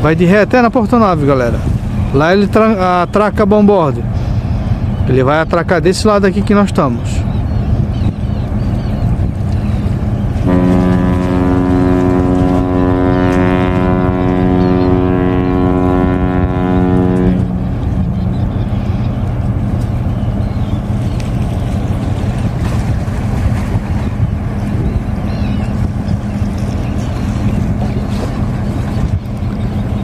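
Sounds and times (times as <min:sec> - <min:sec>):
wind on microphone: 0:07.2 - 0:30.0
low rumble: 0:07.3 - 0:30.0
ship's horn blast: 0:10.3 - 0:30.0.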